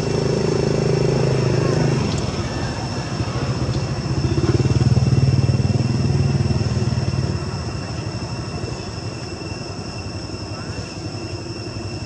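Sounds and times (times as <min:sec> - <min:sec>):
motorcycle engine passing: 0:00.0 - 0:07.4.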